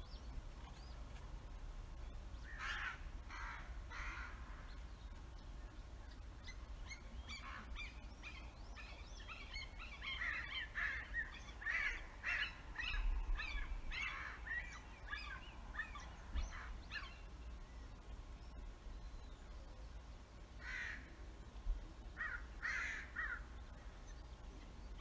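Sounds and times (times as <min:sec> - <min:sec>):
crows and hawk calling: 0:02.4 - 0:04.8, 0:06.9 - 0:17.2, 0:20.6 - 0:21.2, 0:22.2 - 0:24.0.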